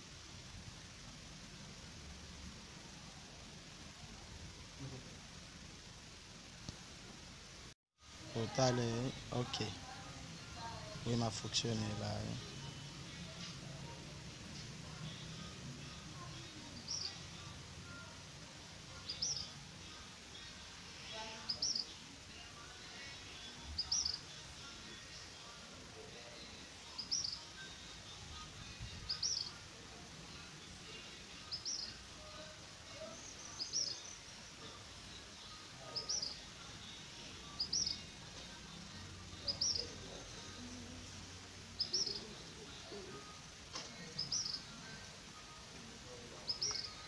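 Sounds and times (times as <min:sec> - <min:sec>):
bird chirping: 0:16.4 - 0:17.4, 0:18.9 - 0:19.6, 0:20.3 - 0:22.0, 0:23.4 - 0:24.4, 0:26.9 - 0:27.5, 0:28.6 - 0:29.6, 0:31.4 - 0:34.8, 0:35.4 - 0:38.1, 0:39.3 - 0:40.8, 0:41.7 - 0:42.9, 0:44.0 - 0:45.0, 0:46.3 - 0:47.0.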